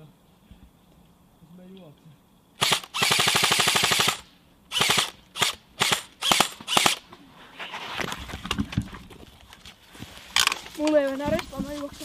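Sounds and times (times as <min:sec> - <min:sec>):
airsoft gun firing bursts: 0:02.6 - 0:07.0.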